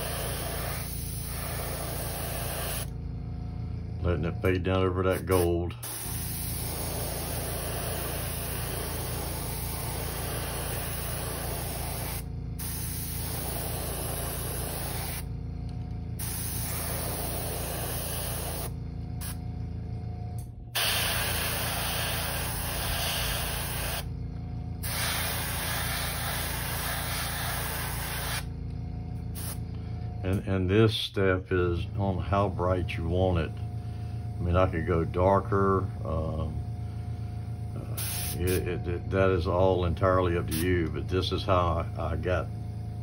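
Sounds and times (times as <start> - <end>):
airbrush spraying hiss: 0.0 - 3.0, 5.1 - 15.3, 16.2 - 19.4, 20.8 - 24.1, 24.8 - 28.5, 29.3 - 29.7, 37.8 - 38.7
steady low hum: 0.0 - 43.0.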